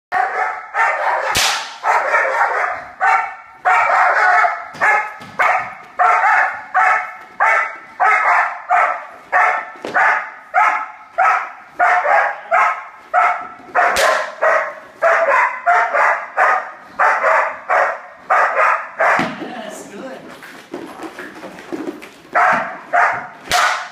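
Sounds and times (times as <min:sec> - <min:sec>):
dog barking: 0:00.1 - 0:19.4, 0:22.4 - 0:23.9
sharp cracks: 0:01.2 - 0:02.0, 0:13.9 - 0:14.4, 0:23.4 - 0:23.9.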